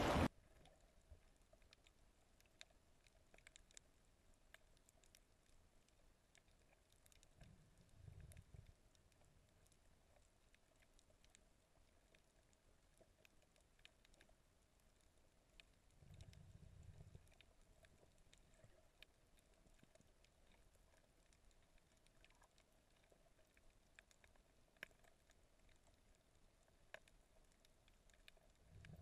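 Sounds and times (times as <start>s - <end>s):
wind on microphone: 0.0s - 0.3s
soft low rumble: 0.0s - 2.8s, 3.8s - 29.0s
underwater reef clicks and crackles: 0.0s - 29.0s.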